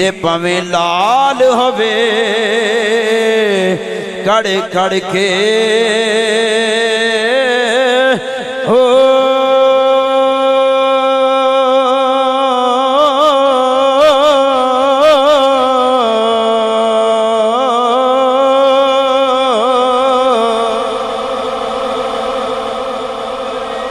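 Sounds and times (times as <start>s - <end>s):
man chanting a long note: 0.0s - 23.9s.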